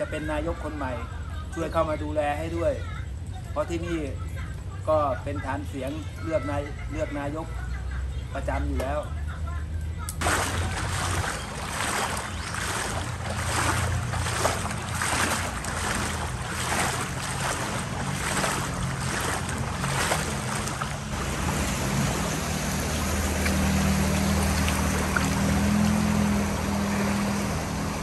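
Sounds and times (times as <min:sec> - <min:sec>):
footsteps wading through water: 0:10.2 - 0:27.3
car driving through water: 0:10.2 - 0:28.0.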